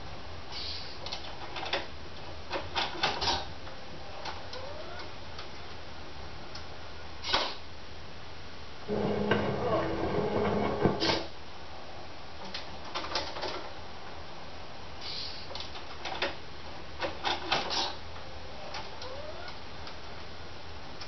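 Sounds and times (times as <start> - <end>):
steady low hum: 7.8 - 12.4
rising squeal: 8.9 - 11.3.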